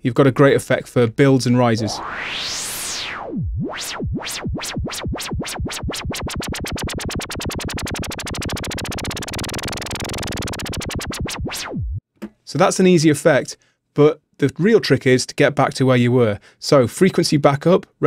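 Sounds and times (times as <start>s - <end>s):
filtered white noise synth riser: 1.8s - 12.0s.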